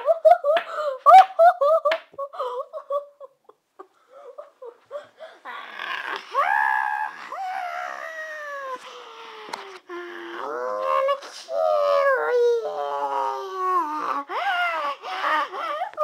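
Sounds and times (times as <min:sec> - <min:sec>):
child wailing cry: 0:10.2 - 0:16.0.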